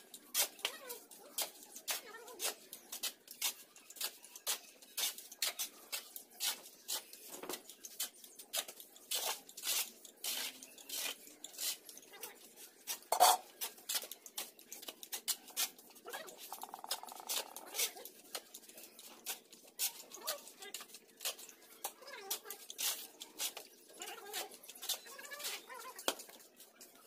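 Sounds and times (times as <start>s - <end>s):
shovels scraping concrete floor: 12.9s - 14.1s.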